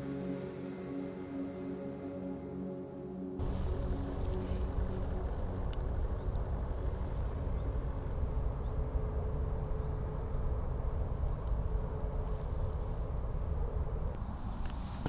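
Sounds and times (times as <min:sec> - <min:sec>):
faint steady hum: 0:00.0 - 0:15.0
low outdoor rumble: 0:03.4 - 0:15.0.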